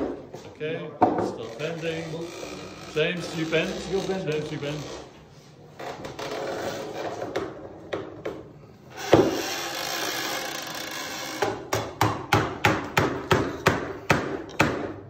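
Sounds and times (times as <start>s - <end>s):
hammer tapping wood: 11.7s - 15.0s.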